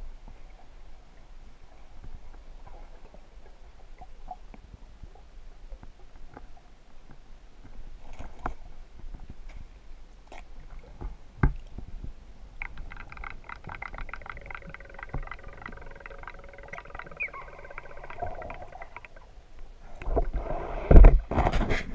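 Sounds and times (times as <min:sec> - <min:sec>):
faint whine with rapid ticking: 0:12.6 - 0:19.2
muffled underwater sound: 0:12.6 - 0:19.3.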